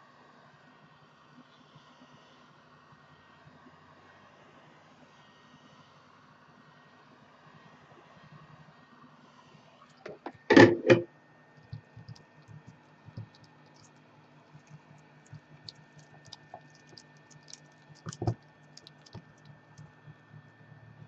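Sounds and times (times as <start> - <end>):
knocks and thumps: 10.1 - 11.1, 18.0 - 18.4
fingers tapping on glass: 11.7 - 13.5.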